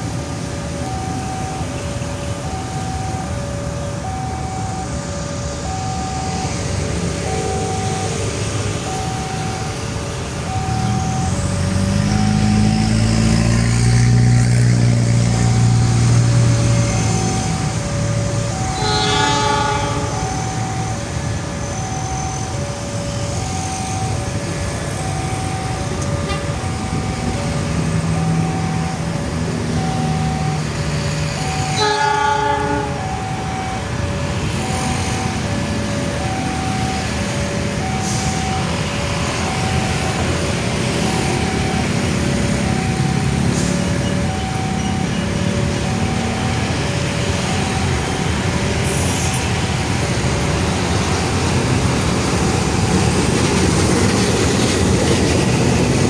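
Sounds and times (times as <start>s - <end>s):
locomotive engine rumbling: 0.0s - 56.0s
two-note warning tone: 13.9s - 37.2s
locomotive horn blasts: 18.5s - 20.9s, 31.7s - 33.2s.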